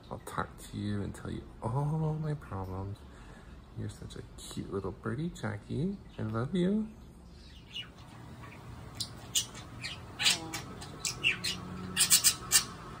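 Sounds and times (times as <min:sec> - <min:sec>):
budgerigar chirping and squawking: 0:07.4 - 0:13.0.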